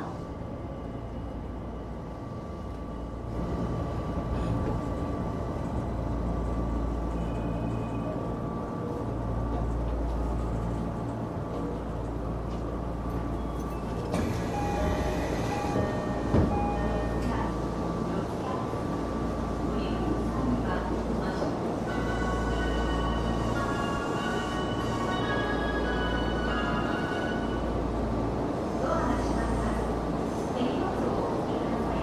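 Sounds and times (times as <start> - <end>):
faint train whine: 0.0 - 32.0
train running rumble: 0.0 - 32.0.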